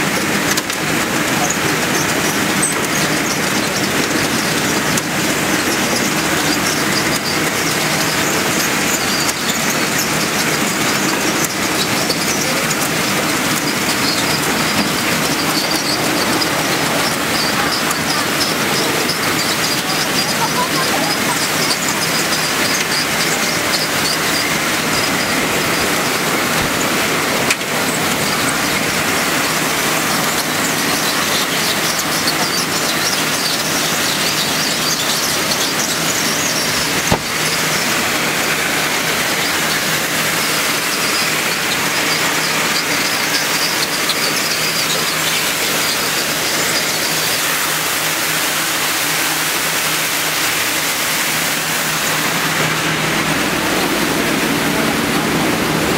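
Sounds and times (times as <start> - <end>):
conveyor and drum washer noise: 0.0 - 55.9
motor hum: 0.0 - 55.9.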